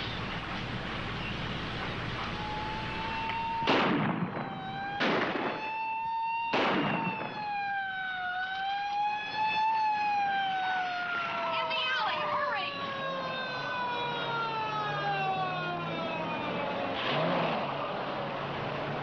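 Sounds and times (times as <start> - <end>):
siren wailing: 1.3 - 17.9
gunshots with echo: 3.6 - 5.8, 6.5 - 7.5.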